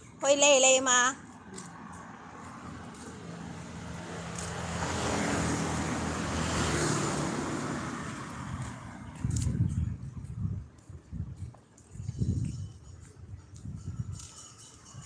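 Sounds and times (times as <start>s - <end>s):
vehicle passing by: 1.4s - 10.5s.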